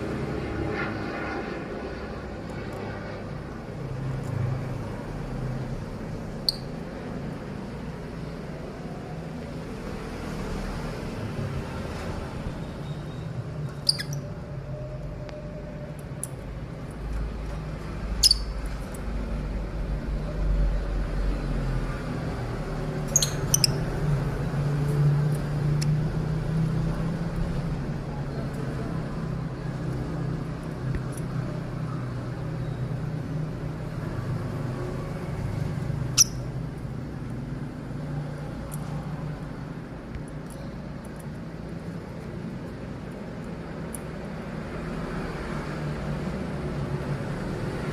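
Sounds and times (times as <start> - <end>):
lovebirds chirping shrilly: 13.7 - 14.4, 18.2 - 18.6, 23.1 - 24.0, 36.1 - 36.5.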